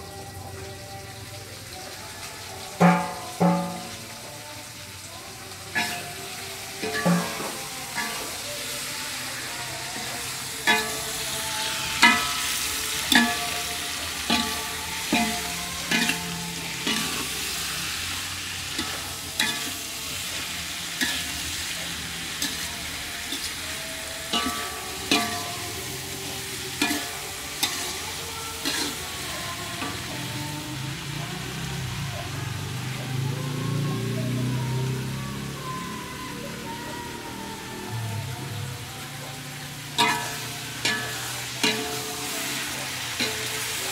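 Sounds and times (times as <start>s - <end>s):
greens sizzling: 0.0s - 43.9s
metal ladle clanking on wok: 2.8s - 4.2s, 6.8s - 8.5s, 9.9s - 17.6s, 18.6s - 21.5s, 22.3s - 30.4s, 39.9s - 43.9s.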